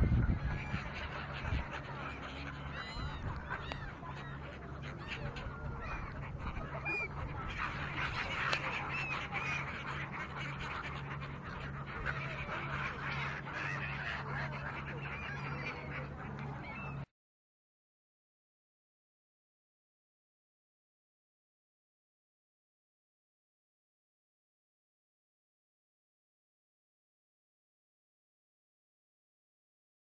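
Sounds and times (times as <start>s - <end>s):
flock of gulls calling: 0.0s - 17.1s.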